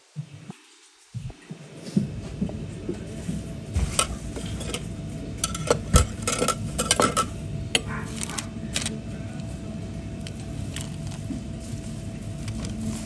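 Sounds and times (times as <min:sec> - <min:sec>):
faint steady hum: 0:00.0 - 0:13.0
dishes and cutlery clinking: 0:03.8 - 0:08.4.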